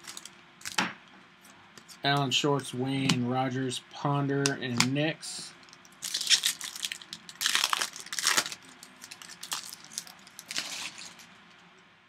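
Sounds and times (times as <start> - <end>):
foil wrapper crinkling: 0.0 - 0.8, 5.8 - 11.4.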